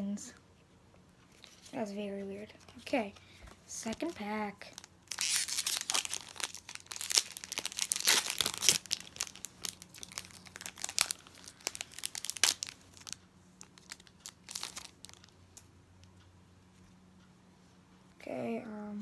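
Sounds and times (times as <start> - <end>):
foil pack tearing and crinkling: 4.8 - 13.2.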